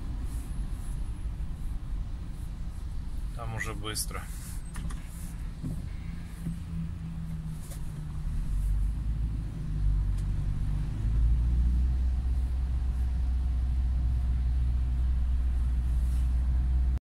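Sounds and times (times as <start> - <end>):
car engine and tyre drone: 4.2 - 17.0.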